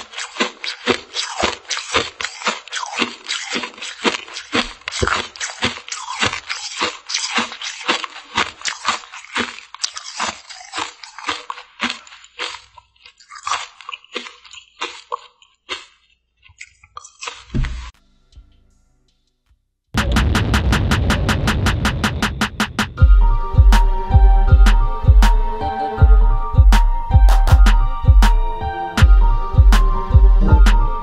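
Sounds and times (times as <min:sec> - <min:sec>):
chewing crunchy frozen sweet: 0:00.0 - 0:17.9.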